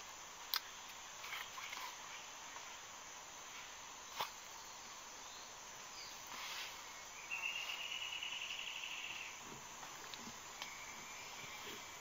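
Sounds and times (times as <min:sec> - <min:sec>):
insect chorus: 0:00.0 - 0:12.0.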